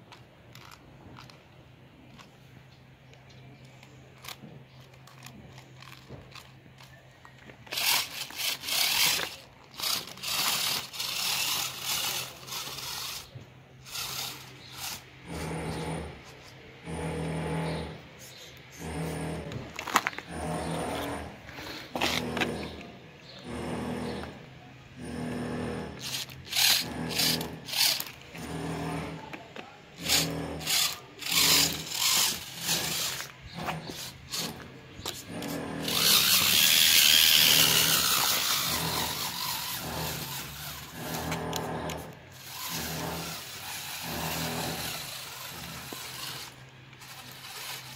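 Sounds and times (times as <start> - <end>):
low electric motor hum: 0.0 - 47.9
plastic wheels crunching gravel: 3.8 - 16.5, 19.6 - 22.6, 26.0 - 47.9.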